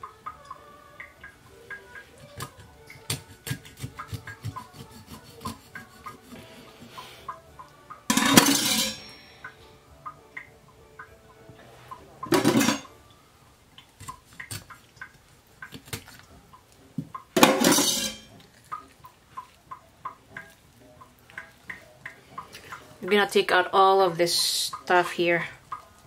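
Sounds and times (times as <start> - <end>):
knife scraping fish: 2.4 - 6.7.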